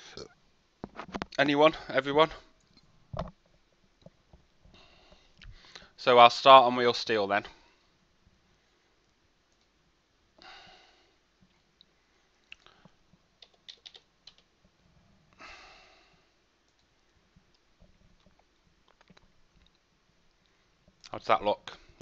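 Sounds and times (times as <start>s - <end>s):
computer mouse clicks: 13.4s - 14.5s.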